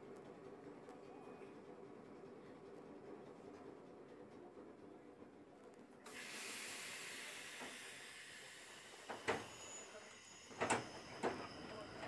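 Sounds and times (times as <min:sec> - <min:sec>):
compressed air hissing: 0:06.1 - 0:09.0.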